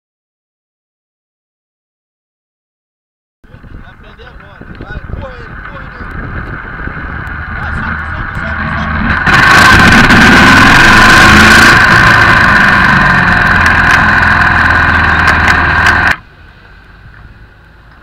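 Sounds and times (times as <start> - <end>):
wind rushing over microphone: 3.5 - 16.2
motorcycle engine running: 4.2 - 16.3.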